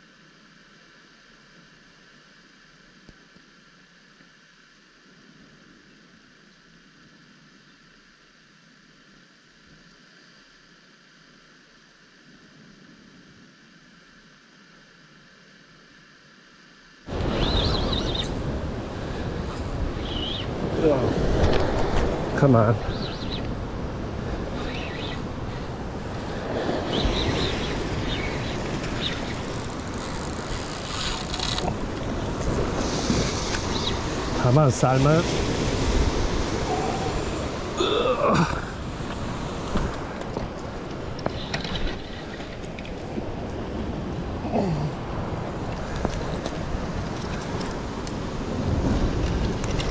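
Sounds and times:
surf washing: 0:17.1 - 0:49.9.

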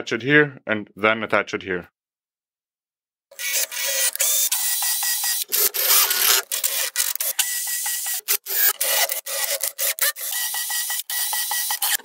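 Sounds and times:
drill bit rasping through wood: 0:03.3 - 0:12.0
faint drill motor whine: 0:03.4 - 0:12.0.

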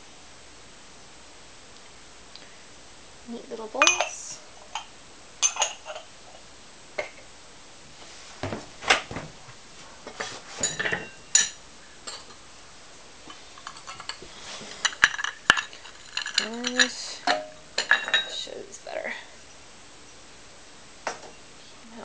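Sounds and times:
ceramic bowls clinking: 0:03.8 - 0:06.1, 0:07.0 - 0:07.3, 0:10.6 - 0:12.4, 0:13.3 - 0:18.5.

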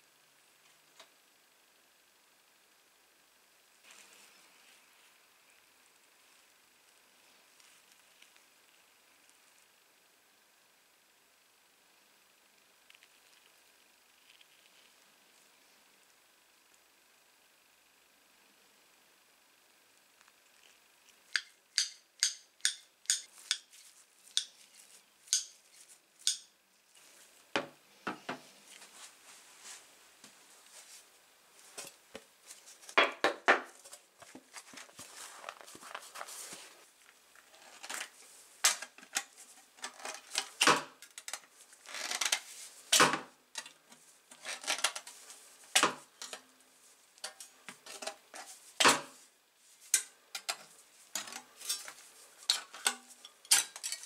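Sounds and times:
tin snips metallic clicks: 0:21.3 - 0:23.7.

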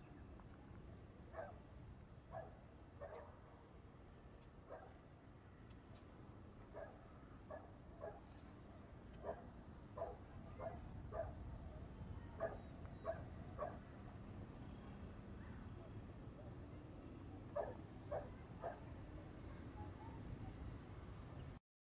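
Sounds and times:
outdoor background noise: 0:00.0 - 0:21.6
dog barking faintly: 0:01.3 - 0:01.6, 0:02.3 - 0:03.5, 0:04.6 - 0:05.0, 0:06.7 - 0:11.5, 0:12.2 - 0:13.9, 0:17.5 - 0:20.6.

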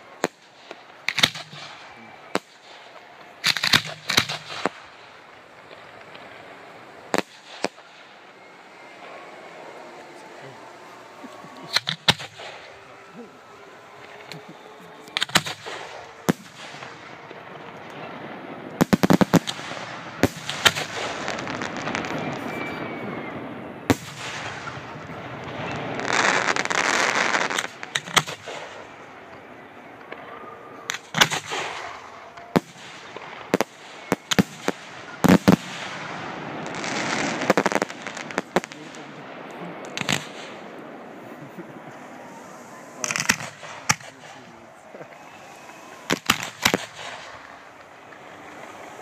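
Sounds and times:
continuous rushing noise: 0:00.0 - 0:26.0, 0:37.5 - 0:49.0
firework shells bursting: 0:00.0 - 0:49.0.

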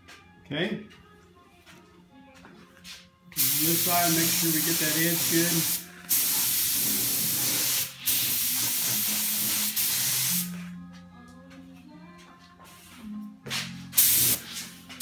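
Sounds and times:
spray gun hissing: 0:03.4 - 0:10.6, 0:14.0 - 0:14.7.

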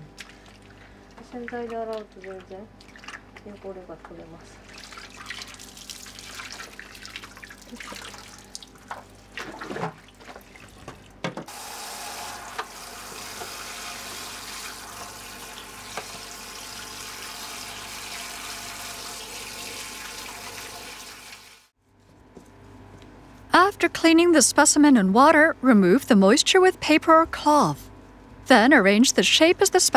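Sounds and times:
water splashing in a plastic tub: 0:00.0 - 0:11.9
tap running: 0:10.8 - 0:21.4.

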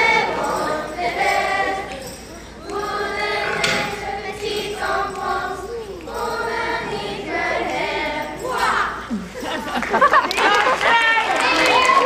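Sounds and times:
children's choir singing: 0:00.0 - 0:10.1.

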